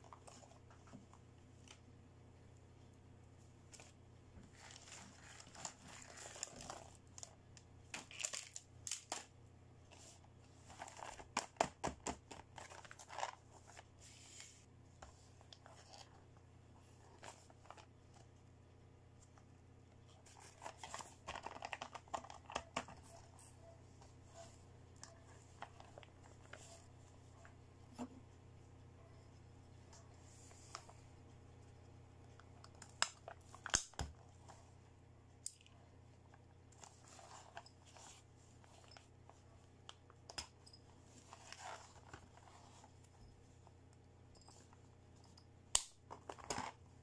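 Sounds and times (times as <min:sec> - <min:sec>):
plastic packaging crinkling: 0:04.5 - 0:09.3, 0:12.3 - 0:13.9, 0:20.3 - 0:23.2.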